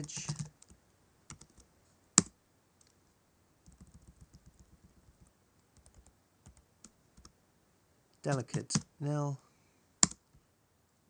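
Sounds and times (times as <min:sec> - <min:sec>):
keyboard typing: 0:00.0 - 0:01.6, 0:03.6 - 0:07.3, 0:08.3 - 0:08.9.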